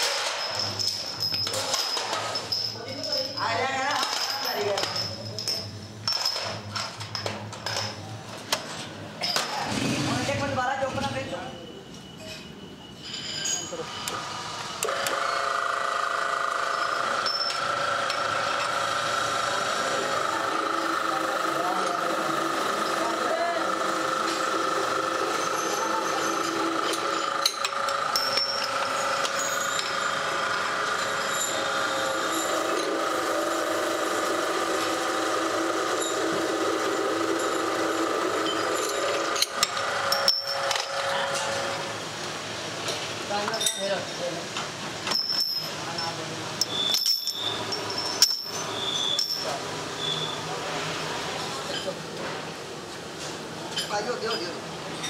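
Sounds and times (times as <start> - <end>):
drill press whine: 11.9 - 42.1, 46.6 - 50.6.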